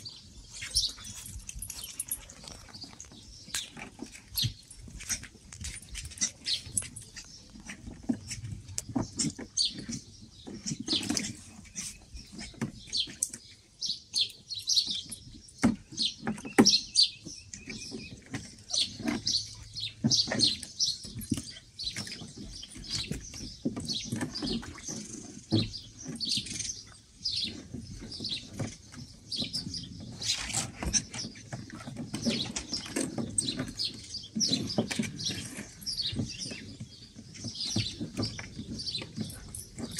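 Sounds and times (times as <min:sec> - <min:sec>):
knocks and scrabbling in plastic pool: 0:00.0 - 0:39.9
puppies chirping and squeaking: 0:00.0 - 0:39.9.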